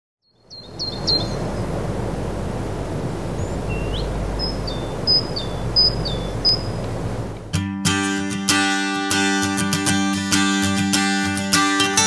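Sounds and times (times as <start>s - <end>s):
bird whistling: 0.4s - 1.7s, 3.4s - 7.2s
low rushing outdoor noise: 0.4s - 7.6s.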